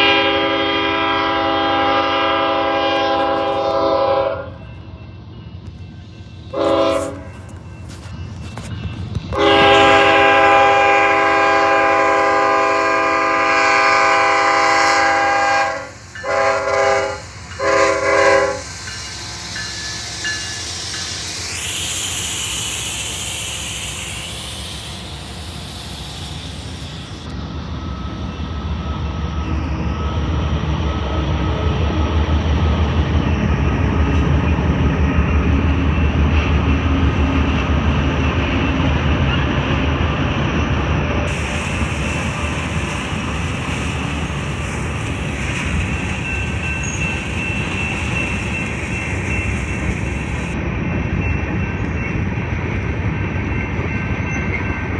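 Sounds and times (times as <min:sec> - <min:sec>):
locomotive air horn blasts: 0:00.0 - 0:04.6, 0:06.5 - 0:07.4, 0:09.3 - 0:18.6
diesel locomotives rumbling: 0:00.0 - 0:54.9.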